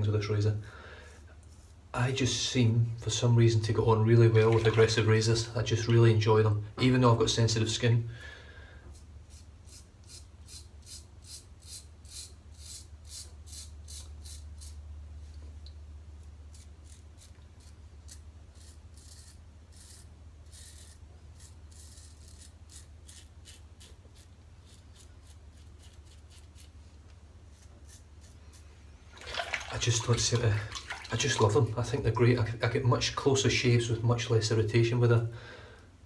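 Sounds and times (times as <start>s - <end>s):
razor scraping stubble: 8.9s - 14.8s, 16.5s - 26.8s, 27.4s - 28.7s.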